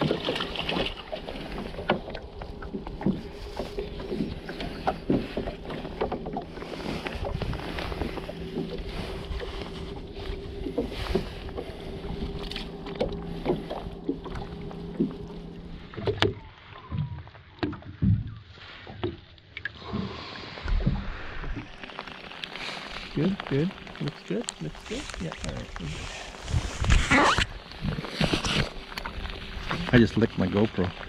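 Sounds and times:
steady low hum: 0.0s - 16.1s
hands and net handling noise: 20.6s - 30.5s.

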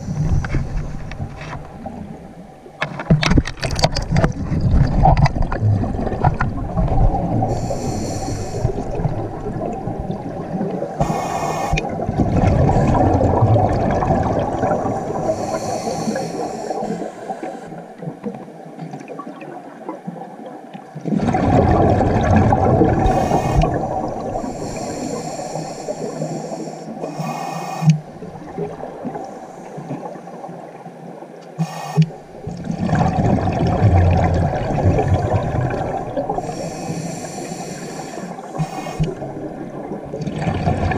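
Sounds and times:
bubbling exhalations underwater: 3.8s - 7.6s, 11.7s - 15.5s, 21.0s - 24.6s, 32.4s - 36.5s, 39.0s - 40.9s
hissing regulator inhalations: 7.5s - 9.0s, 11.0s - 11.9s, 15.0s - 17.8s, 23.0s - 28.0s, 31.6s - 32.2s, 36.3s - 39.2s.

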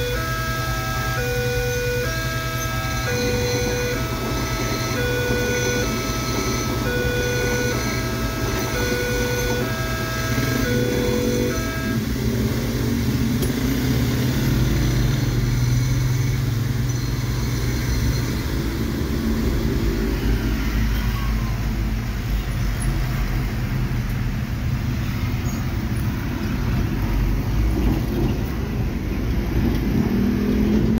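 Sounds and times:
level crossing electronic tones: 0.0s - 12.1s
street traffic: 0.0s - 31.0s.

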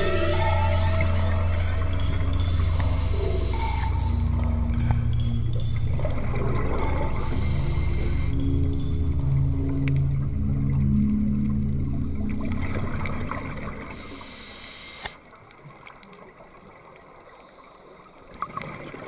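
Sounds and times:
soft background music: 0.0s - 14.4s
underwater bubbles gurgling: 1.0s - 19.0s.

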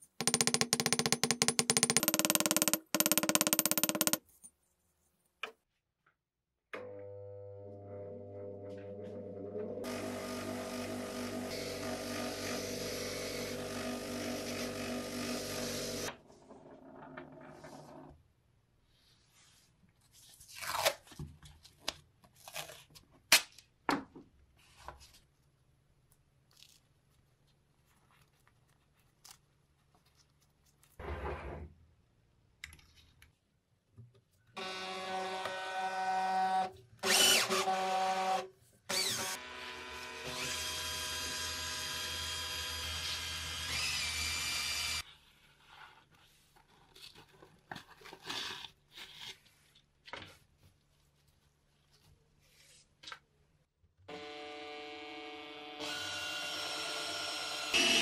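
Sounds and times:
small handling noises: 24.5s - 31.0s, 32.6s - 34.5s, 45.0s - 53.7s
cordless drill motor whining: 37.0s - 39.5s, 42.1s - 45.0s, 54.1s - 58.0s.

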